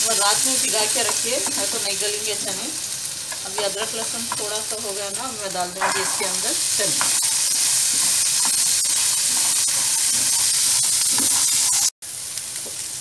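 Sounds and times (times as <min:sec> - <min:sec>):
chickpeas sizzling in oil: 0:00.0 - 0:13.0
spatula ticking against pan: 0:03.3 - 0:04.5.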